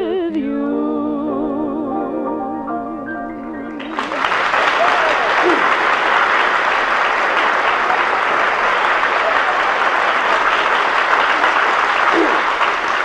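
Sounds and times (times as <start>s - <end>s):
audience applauding: 3.8s - 13.0s.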